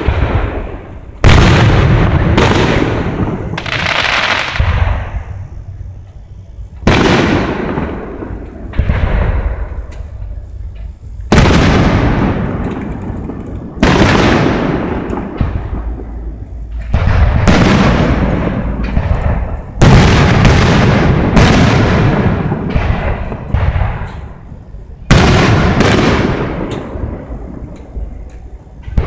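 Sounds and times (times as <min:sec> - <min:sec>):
fireworks booming with echo: 0:00.0 - 0:29.0
small fireworks pops: 0:00.0 - 0:29.0.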